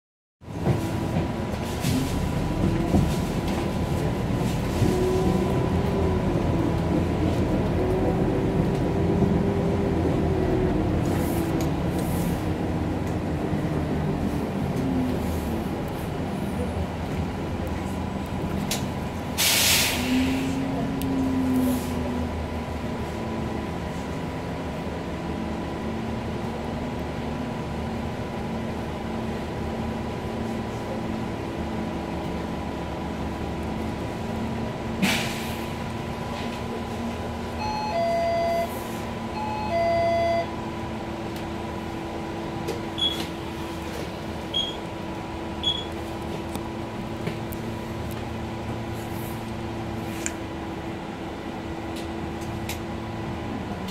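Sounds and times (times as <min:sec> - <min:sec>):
bus engine idling: 0:00.4 - 0:53.9
short sharp air hisses: 0:19.4 - 0:20.5, 0:35.0 - 0:35.7.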